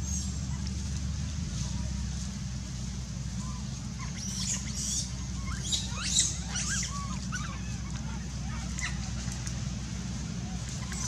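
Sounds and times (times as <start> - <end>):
monkeys squealing: 3.4 - 9.4, 10.5 - 11.0.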